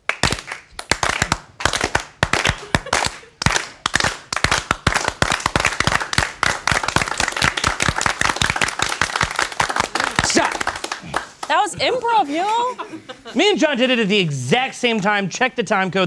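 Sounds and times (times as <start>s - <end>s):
hand clapping and applause: 0.0s - 11.7s.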